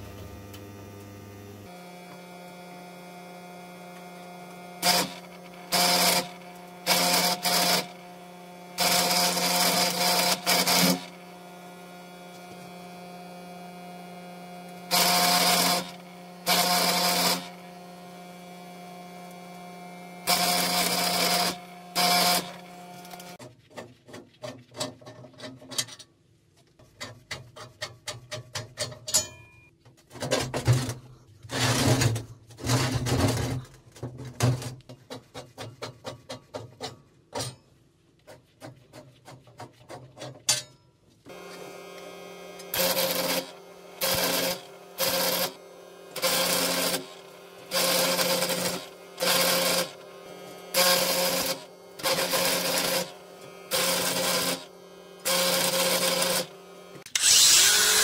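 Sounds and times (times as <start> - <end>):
welding machine hum: 0.0 - 23.4, 41.3 - 58.0
welding arc crackle: 4.8 - 7.9, 14.9 - 17.6, 20.2 - 23.4, 42.6 - 50.0, 50.7 - 58.0
knocking and scraping on metal: 23.4 - 40.8.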